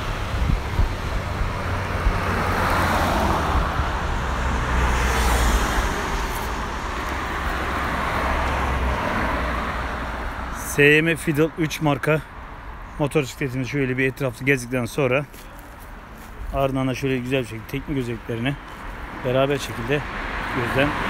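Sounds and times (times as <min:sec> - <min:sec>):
low traffic rumble: 0:00.0 - 0:21.0
vehicle passing: 0:00.0 - 0:21.0.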